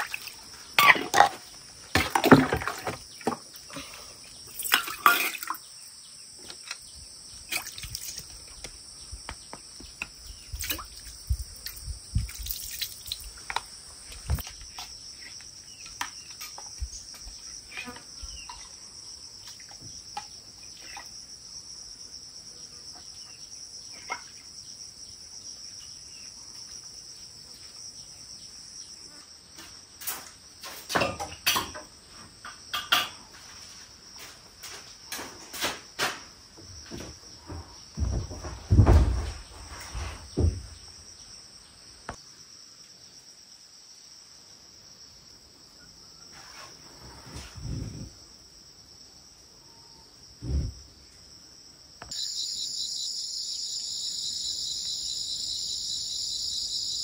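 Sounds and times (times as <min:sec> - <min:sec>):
insects chirring: 0:00.0 - 0:57.0.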